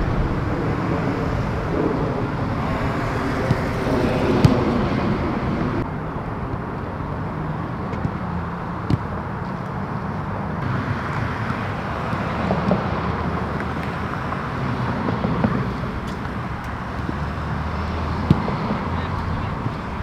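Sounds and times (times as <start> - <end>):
low hum: 0.0 - 7.8
distant traffic rumble: 0.0 - 20.0.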